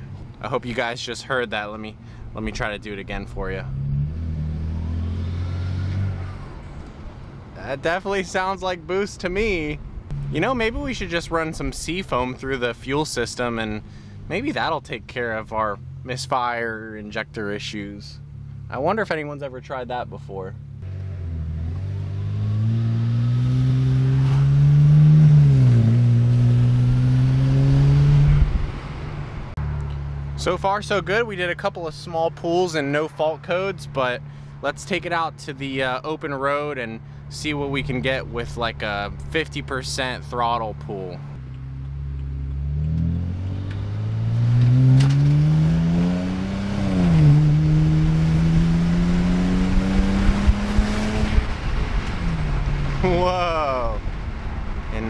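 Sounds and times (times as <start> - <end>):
car engine revving from inside: 3.7 - 6.5, 20.8 - 28.5, 42.3 - 51.5.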